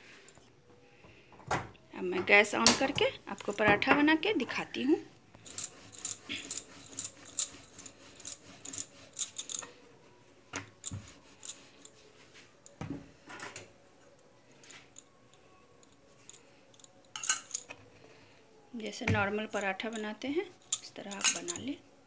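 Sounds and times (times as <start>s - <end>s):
glass bangles clinking: 5.4s - 9.9s, 10.7s - 12.8s, 14.0s - 17.8s, 19.6s - 21.8s.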